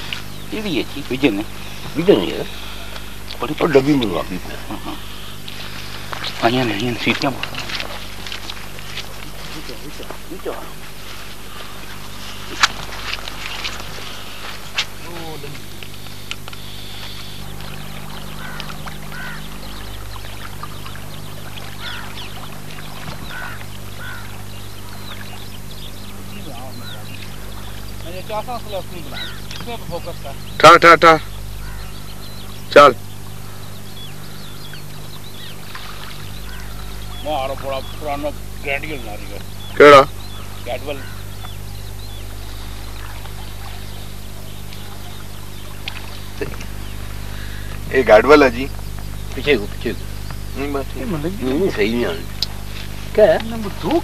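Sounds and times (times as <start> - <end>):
water sloshing around waders: 0.0 - 30.7, 31.3 - 54.0
ducks calling: 0.0 - 54.0
steady low hum: 0.0 - 54.0
small ticks: 12.5 - 24.2, 52.4 - 54.0.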